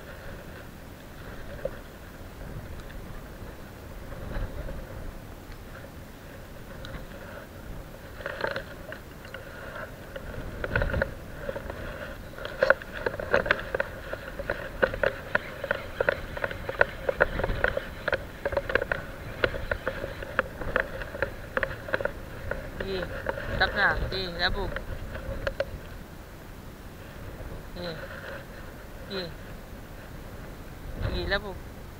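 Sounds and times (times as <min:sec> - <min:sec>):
fishing reel clicking: 0:12.4 - 0:22.6.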